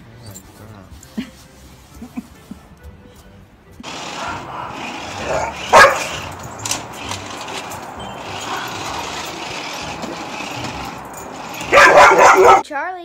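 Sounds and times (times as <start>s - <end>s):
dog barking: 4.1s - 6.3s, 11.6s - 12.6s.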